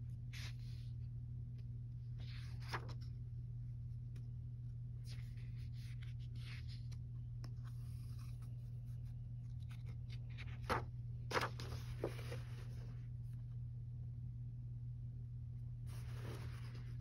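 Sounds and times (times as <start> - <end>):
low electrical hum: 0.0 - 17.0
paper pages rustling: 2.2 - 3.2, 5.0 - 13.2, 15.9 - 17.0.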